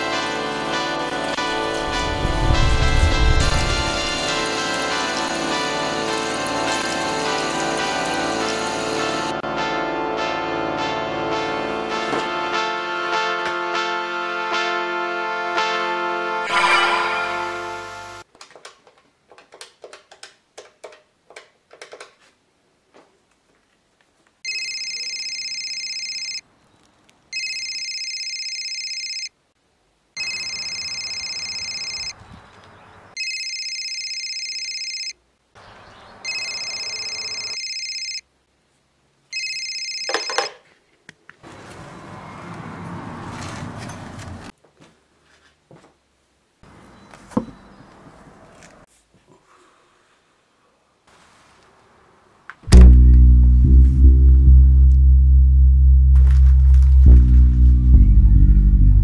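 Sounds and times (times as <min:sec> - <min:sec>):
electronic telephone ringing: 0:24.4 - 0:26.4, 0:27.3 - 0:29.3, 0:30.2 - 0:32.2, 0:33.2 - 0:35.2, 0:36.2 - 0:38.2, 0:39.3 - 0:40.6.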